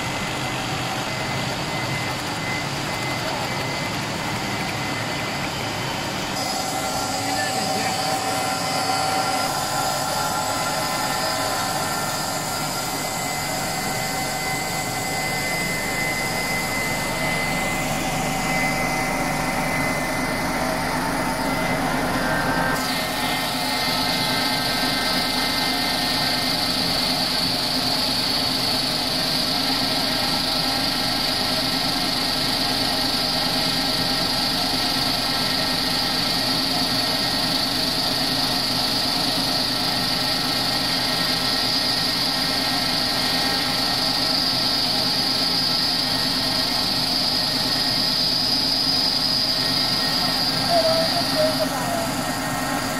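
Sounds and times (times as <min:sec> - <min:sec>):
machine whine over hum: 0:00.0 - 0:52.9.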